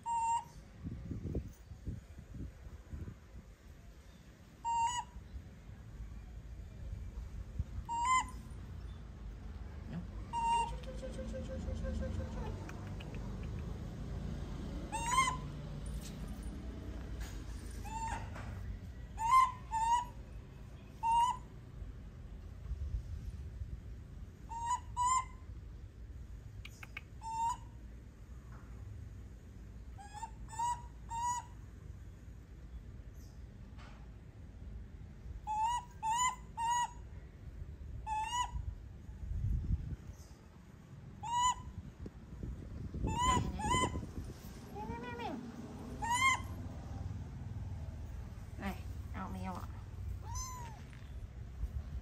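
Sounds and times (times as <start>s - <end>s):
baby monkey coo calls: 0.0s - 0.6s, 4.6s - 5.2s, 7.8s - 8.5s, 9.9s - 13.6s, 14.9s - 15.6s, 17.8s - 18.3s, 19.1s - 20.2s, 21.0s - 21.5s, 24.5s - 25.4s, 26.7s - 27.8s, 30.0s - 31.6s, 35.4s - 37.1s, 38.0s - 38.7s, 41.2s - 41.8s, 43.0s - 44.1s, 44.8s - 46.7s, 48.6s - 51.2s
baby monkey cooing: 7.9s - 8.4s, 9.9s - 13.2s, 14.9s - 15.4s, 43.0s - 44.0s, 46.0s - 46.6s, 50.2s - 50.9s.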